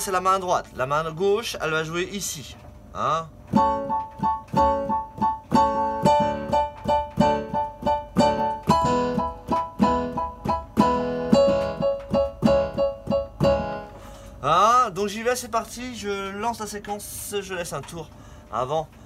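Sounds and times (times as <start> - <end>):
piano chords: 3.5 - 14.2.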